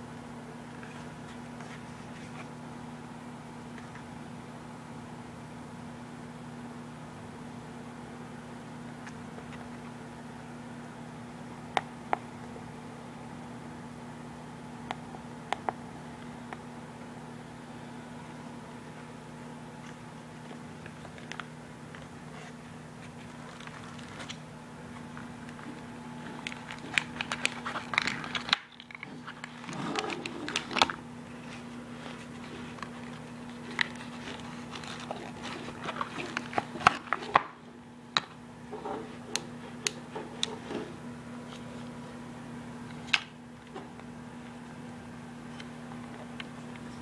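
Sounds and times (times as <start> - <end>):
low steady hum: 0.0 - 47.0
handling clicks rustles and knocks: 25.0 - 37.6.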